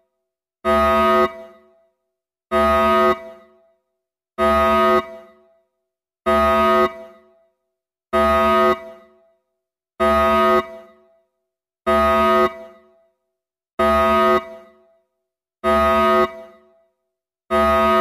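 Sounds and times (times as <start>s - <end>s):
emergency alarm horn blasts: 0.6s - 1.9s, 2.5s - 3.7s, 4.4s - 5.6s, 6.3s - 7.4s, 8.1s - 9.4s, 10.0s - 11.1s, 11.9s - 13.1s, 13.8s - 15.0s, 15.6s - 16.8s, 17.5s - 18.0s.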